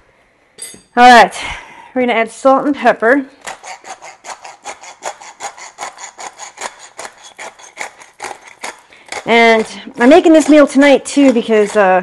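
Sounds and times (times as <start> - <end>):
pepper grinder grinding: 3.4 - 12.0.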